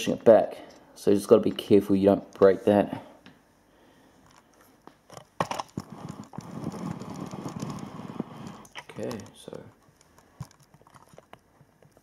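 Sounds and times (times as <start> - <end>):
rustling and scraping: 4.2 - 12.0.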